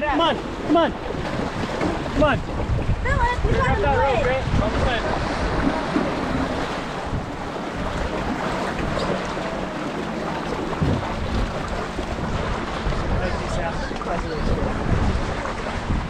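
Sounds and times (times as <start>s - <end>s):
river water rushing: 0.0s - 16.0s
wind buffeting microphone: 0.0s - 16.0s.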